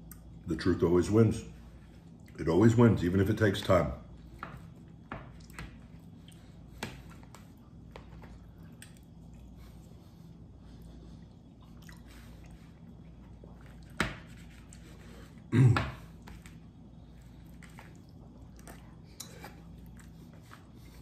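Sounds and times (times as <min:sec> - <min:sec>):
faint chewing: 0:04.2 - 0:15.5, 0:16.2 - 0:21.0.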